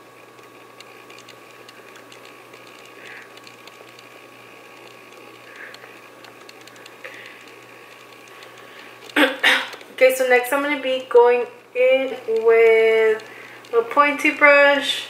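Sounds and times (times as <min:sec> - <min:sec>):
thin high whine: 0:00.0 - 0:15.0
faint clicks: 0:00.3 - 0:09.9, 0:12.2 - 0:13.8.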